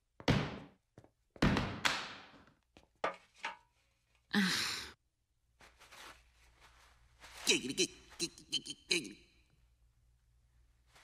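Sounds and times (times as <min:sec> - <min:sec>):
person sighing: 0:04.3 - 0:05.0.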